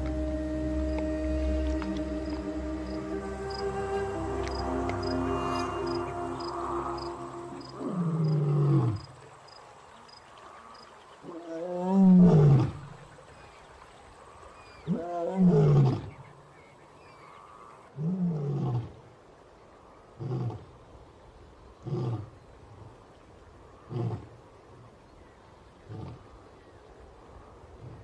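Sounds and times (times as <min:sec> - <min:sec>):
lion roaring: 0:07.5 - 0:09.1.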